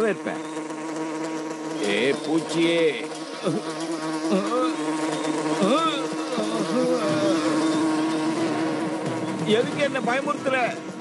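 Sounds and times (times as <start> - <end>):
insect wings droning: 0.0 - 11.0
wavering chirps: 1.4 - 10.1.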